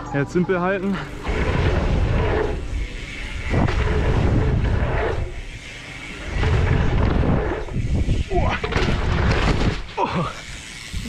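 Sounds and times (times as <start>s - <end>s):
tyres rolling on dirt: 0.9s - 11.0s
wind buffeting microphone: 1.2s - 5.6s, 6.3s - 9.9s.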